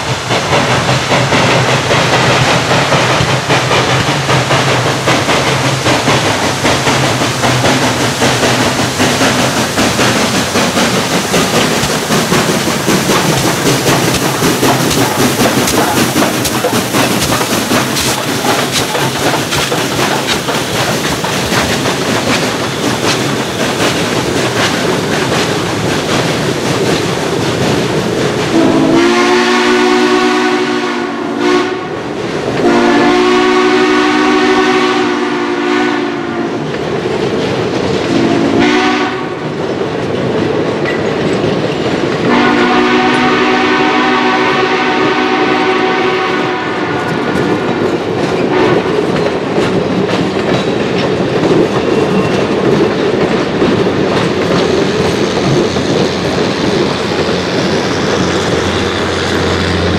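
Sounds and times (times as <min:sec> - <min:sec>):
coaches clickety-clack: 0:00.0 - 0:28.7, 0:39.4 - 0:43.2, 0:47.0 - 0:59.0
steam locomotive exhaust beats: 0:00.0 - 0:59.9
train rumble: 0:00.0 - 0:59.9
train chime horn blasts: 0:28.6 - 0:32.0, 0:32.6 - 0:36.5, 0:38.1 - 0:39.4, 0:42.3 - 0:47.3.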